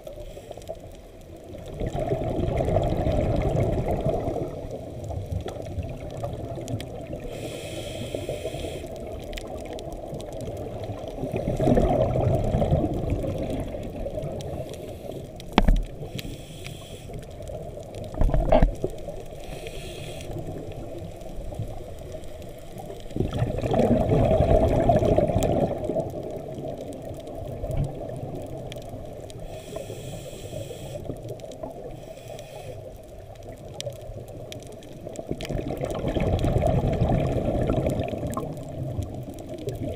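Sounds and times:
exhaled bubbles: 0:01.4 - 0:07.4, 0:08.8 - 0:16.2, 0:22.8 - 0:29.4, 0:33.4 - 0:39.9
diver regulator breathing: 0:07.2 - 0:09.1, 0:14.4 - 0:17.4, 0:19.3 - 0:20.9, 0:29.4 - 0:31.2, 0:31.8 - 0:33.0.

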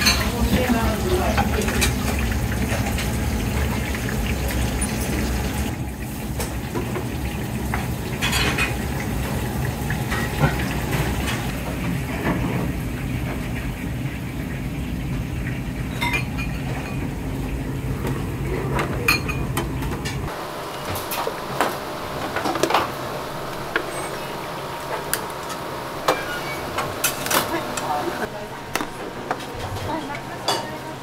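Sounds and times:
ceramic bowls and utensils clinking: 0:00.0 - 0:03.0, 0:08.1 - 0:08.8, 0:15.9 - 0:17.2, 0:18.7 - 0:20.3, 0:25.4 - 0:30.9
tempura frying in oil: 0:00.0 - 0:31.0.

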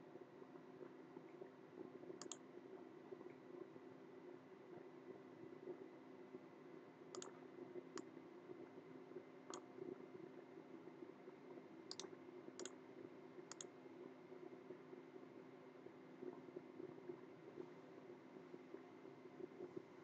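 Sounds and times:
faint steady hum: 0:00.0 - 0:20.0
mouse button clicks: 0:11.9 - 0:12.8.

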